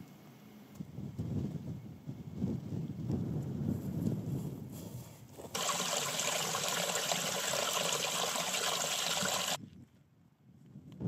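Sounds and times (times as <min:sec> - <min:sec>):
river water rushing: 0:05.6 - 0:09.6.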